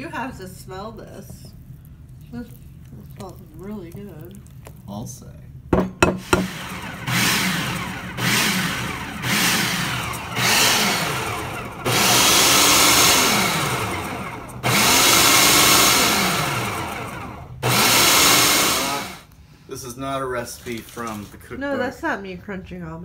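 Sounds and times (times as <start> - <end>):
food processor pulsing: 6.0 - 19.3.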